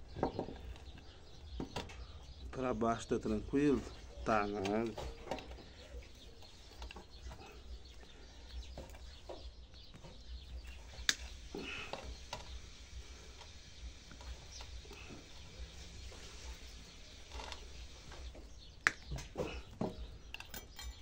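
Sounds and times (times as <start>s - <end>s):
hand tool clicking on wire: 11.0s - 11.3s, 20.3s - 21.0s.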